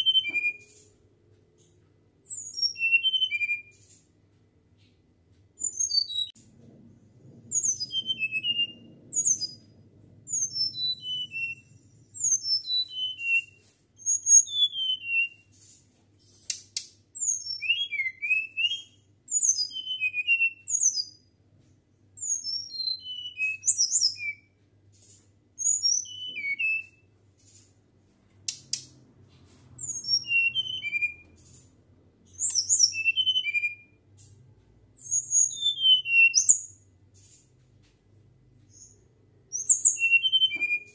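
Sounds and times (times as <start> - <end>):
bird singing whistled notes: 0.0 - 0.8, 2.3 - 3.8, 5.6 - 6.4, 7.5 - 9.7, 10.3 - 15.5, 17.2 - 21.3, 22.2 - 24.6, 25.6 - 27.1, 29.8 - 31.4, 32.3 - 34.0, 35.0 - 36.9, 38.7 - 40.9.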